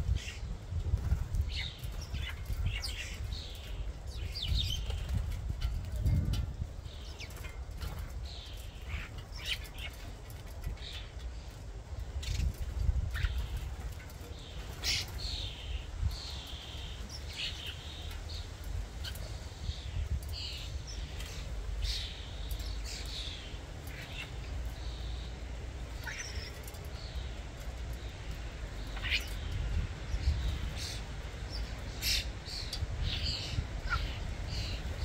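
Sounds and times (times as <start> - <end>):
starlings chirping and whistling: 14.3 - 27.4, 28.8 - 35.0.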